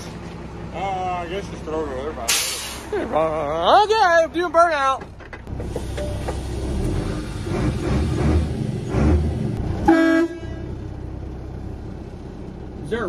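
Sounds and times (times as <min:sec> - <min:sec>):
truck engine rumbling: 0:00.0 - 0:13.0
truck horn blast: 0:09.8 - 0:10.8.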